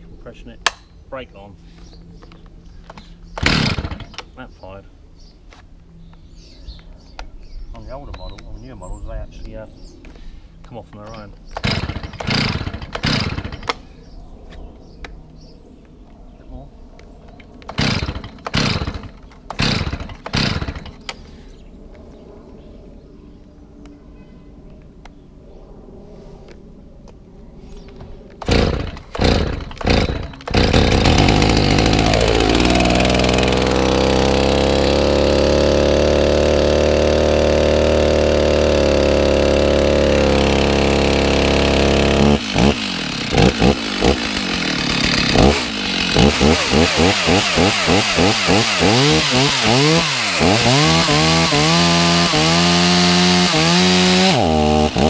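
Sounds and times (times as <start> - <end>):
chainsaw engine running and revving: 3.4 - 4.2, 11.6 - 13.7, 17.8 - 20.9, 28.5 - 55.0
chainsaw pull cord: 3.4 - 4.3, 11.6 - 13.8, 17.7 - 21.1, 28.4 - 55.0.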